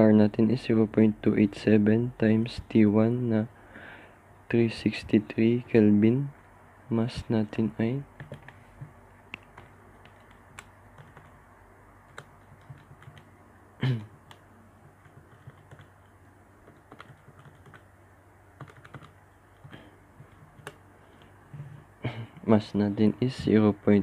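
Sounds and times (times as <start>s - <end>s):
calculator keys clicking: 9.6s - 11.3s, 12.1s - 13.3s, 14.2s - 15.9s, 16.6s - 17.8s, 18.6s - 20.8s.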